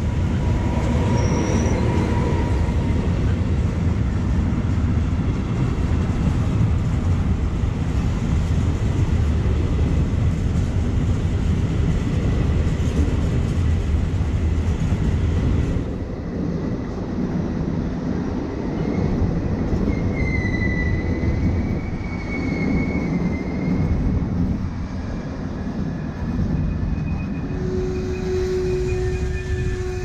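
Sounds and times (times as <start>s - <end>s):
train wheels rumbling on rails: 0.0s - 30.0s
high wheel squeal: 0.8s - 2.6s, 19.9s - 24.1s, 26.5s - 30.0s.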